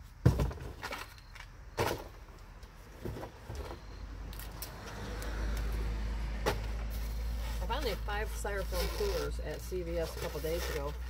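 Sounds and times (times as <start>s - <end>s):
cardboard box thump: 0.2s - 0.8s.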